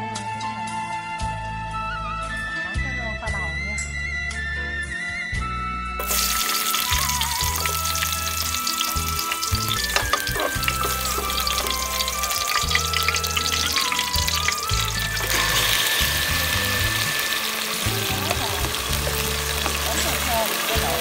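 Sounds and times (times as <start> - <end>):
background music with melody: 0.0 - 21.0
onion sizzling in hot oil: 6.0 - 21.0.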